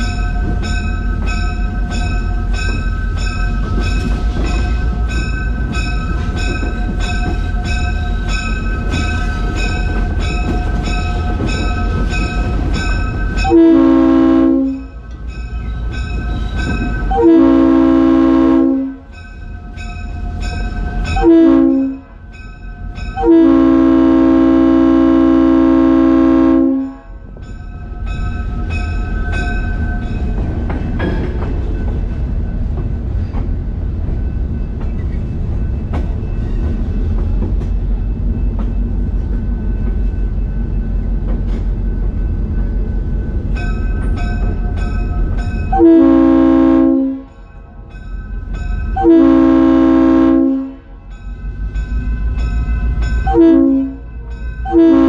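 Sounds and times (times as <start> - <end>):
wheel and rail clatter: 0.0 - 13.6, 14.7 - 17.2, 27.2 - 45.8
diesel locomotive engine running: 0.0 - 22.2
locomotive air horn blasts: 13.5 - 14.8, 17.1 - 19.0, 21.2 - 22.0, 23.2 - 27.2, 45.7 - 47.3, 49.0 - 51.0, 53.3 - 54.0, 54.7 - 55.0.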